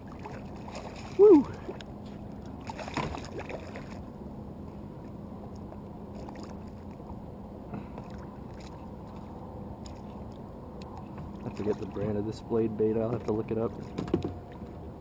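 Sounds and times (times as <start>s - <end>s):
fish thrashing and splashing: 0.0s - 1.8s, 2.5s - 4.1s
low wash of water: 0.0s - 15.0s.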